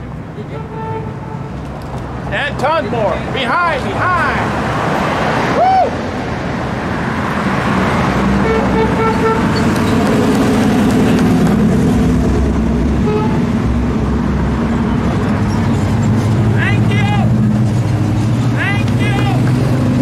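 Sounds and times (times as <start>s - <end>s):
cars driving past: 0.0s - 20.0s
car horn toots: 8.4s - 9.8s, 13.0s - 13.5s.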